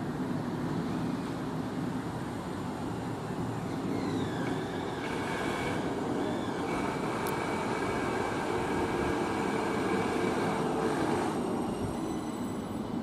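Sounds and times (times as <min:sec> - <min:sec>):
tram running gear rumble: 0:00.0 - 0:13.0
high whining tones: 0:02.8 - 0:13.0.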